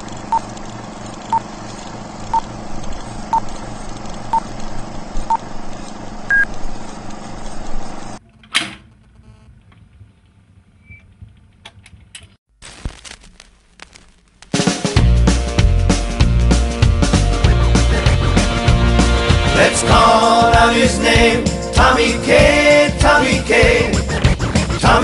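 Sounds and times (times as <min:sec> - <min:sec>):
faint vinyl crackles: 0:12.2 - 0:15.0
stylus scraping vinyl: 0:23.7 - 0:25.0.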